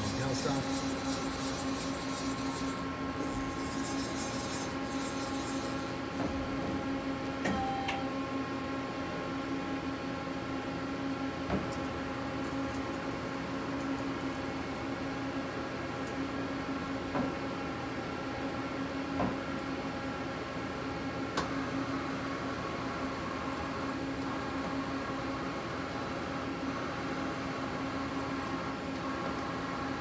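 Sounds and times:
lathe idling hum: 0:00.0 - 0:06.0.

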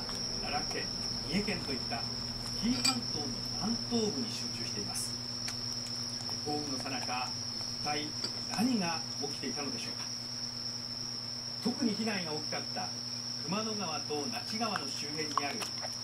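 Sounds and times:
person speaking: 0:06.4 - 0:10.0.

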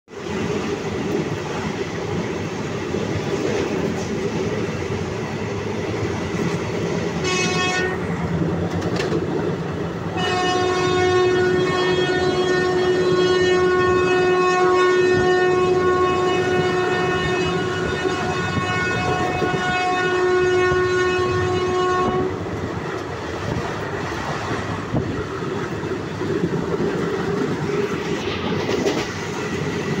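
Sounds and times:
train rumbling on track: 0:00.1 - 0:30.0
train horn: 0:07.2 - 0:08.2, 0:10.1 - 0:22.4
train wheels clacking: 0:22.5 - 0:30.0.

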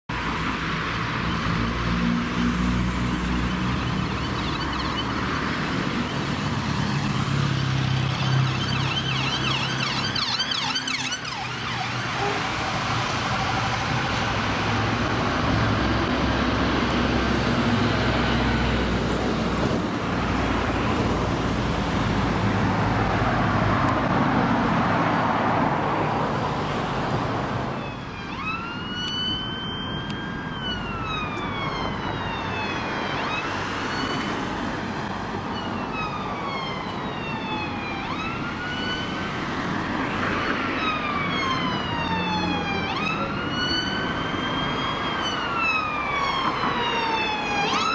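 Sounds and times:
dense road traffic: 0:00.1 - 0:47.9
police siren wailing: 0:03.2 - 0:16.9, 0:27.5 - 0:47.9.

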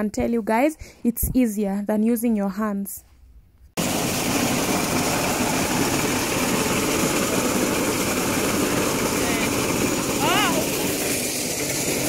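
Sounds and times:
maize sheller mechanical rattle: 0:03.8 - 0:12.0.

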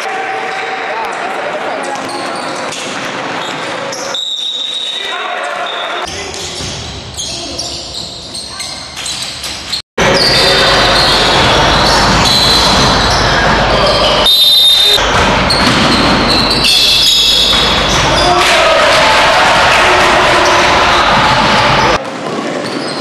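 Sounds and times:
voices of players and spectators: 0:00.0 - 0:23.0.

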